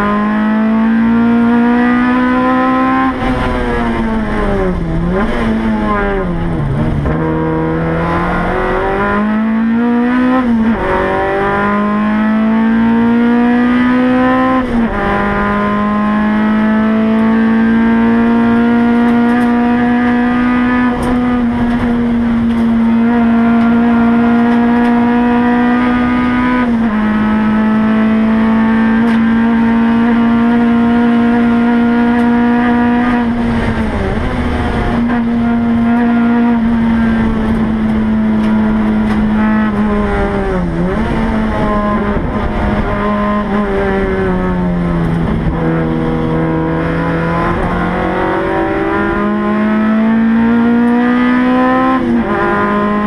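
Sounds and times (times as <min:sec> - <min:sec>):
race car engine at high revs: 0:00.0 - 0:53.0.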